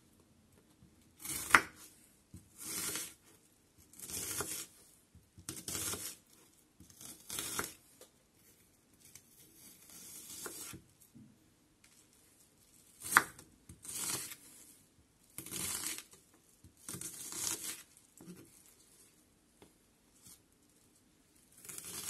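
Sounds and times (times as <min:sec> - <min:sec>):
knife slicing onion: 0:01.2 - 0:03.2, 0:03.9 - 0:04.8, 0:05.4 - 0:06.2, 0:06.8 - 0:07.8, 0:09.0 - 0:10.8, 0:13.0 - 0:14.6, 0:15.4 - 0:18.6, 0:21.6 - 0:22.0.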